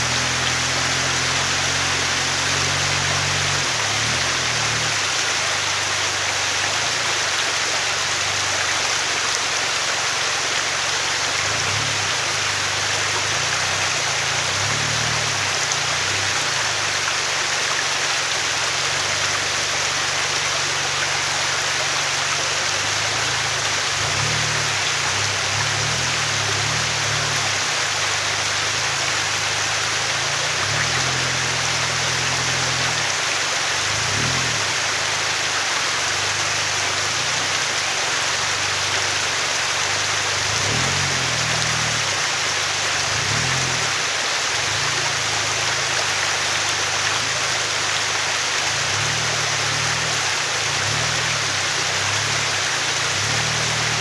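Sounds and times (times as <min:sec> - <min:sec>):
rushing stream water: 0:00.0 - 0:54.0
vehicle engine revving: 0:00.0 - 0:54.0.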